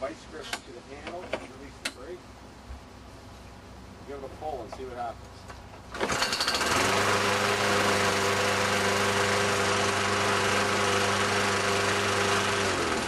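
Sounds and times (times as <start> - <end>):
lawn mower engine running: 5.9 - 13.0.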